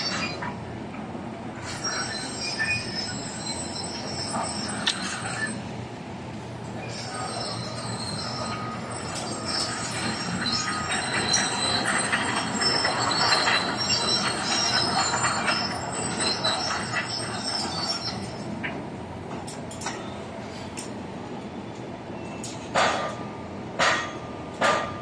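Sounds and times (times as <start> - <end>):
crane wheels squealing on rails: 0.0 - 25.0.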